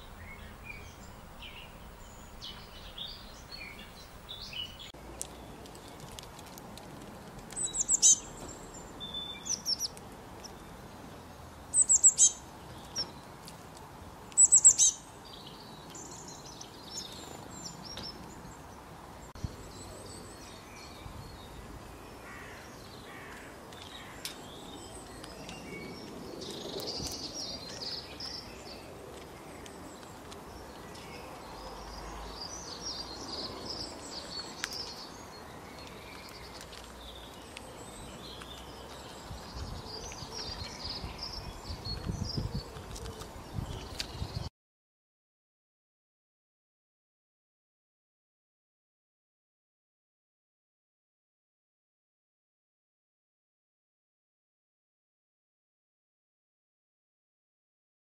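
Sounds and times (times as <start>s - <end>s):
small birds chirping: 0.0s - 44.5s.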